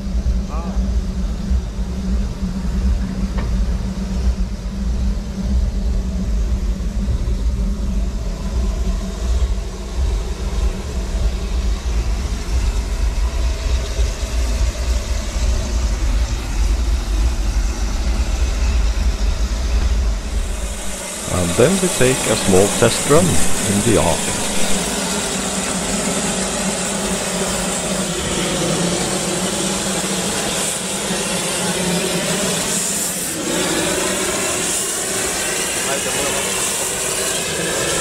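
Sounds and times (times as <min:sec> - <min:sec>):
oil burner rumble and hiss: 0:00.0 - 0:13.4, 0:20.2 - 0:24.8.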